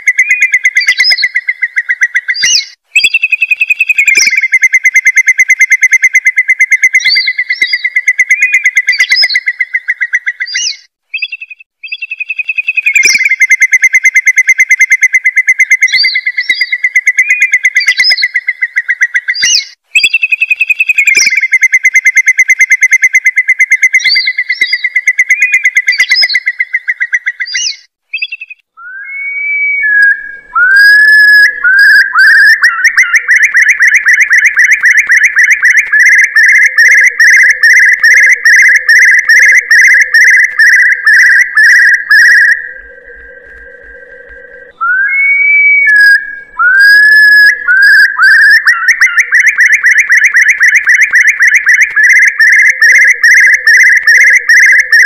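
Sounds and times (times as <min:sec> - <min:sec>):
curlew call fast trills: 0:00.0 - 0:55.0
rising whistled notes: 0:28.3 - 0:55.0.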